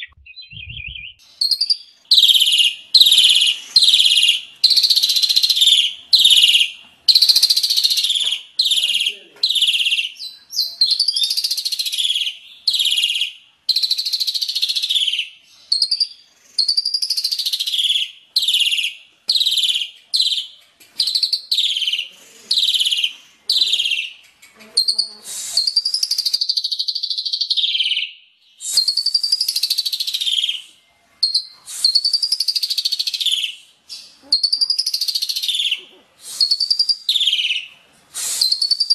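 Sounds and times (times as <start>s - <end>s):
songbird harsh high phrases: 2.1s - 12.9s, 21.5s - 26.9s, 32.9s - 37.7s.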